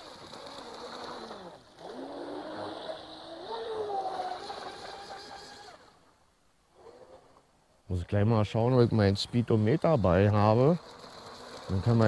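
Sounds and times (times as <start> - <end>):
electric motor whining: 0.3 - 6.0.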